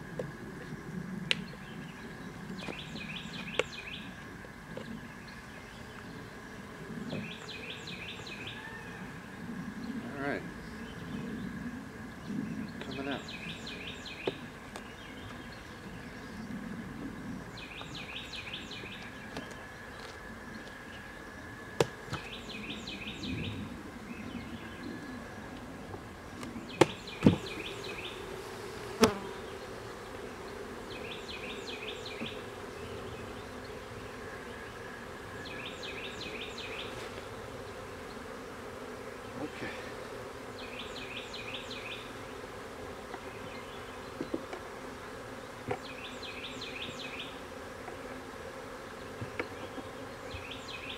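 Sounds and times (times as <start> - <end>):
honey bees buzzing: 0.0 - 50.9
bird chirping: 1.4 - 4.1, 17.6 - 21.4, 49.0 - 50.9.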